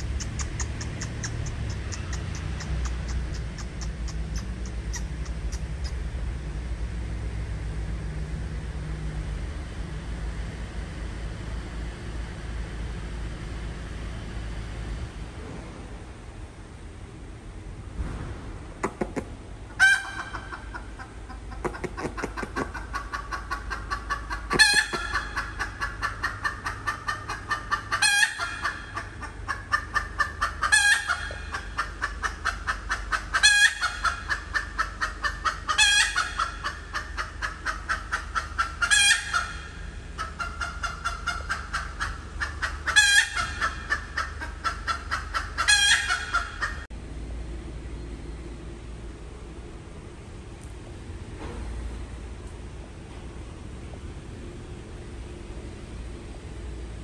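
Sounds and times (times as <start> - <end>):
hen cackling and squawking: 0.0 - 6.1, 18.8 - 46.9.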